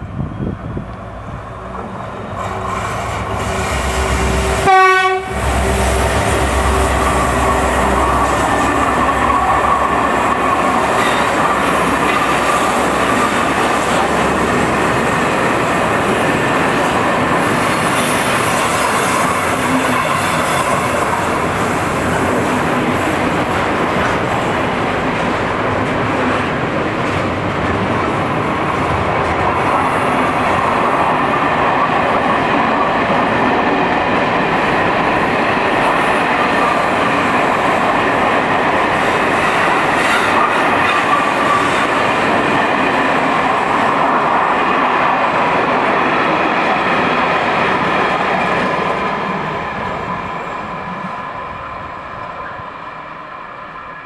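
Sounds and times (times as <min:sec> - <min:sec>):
locomotive engine rumbling: 0:00.0 - 0:17.4
train wagons clattering by: 0:00.9 - 0:33.2, 0:33.8 - 0:50.4
train horn blast: 0:02.4 - 0:09.0.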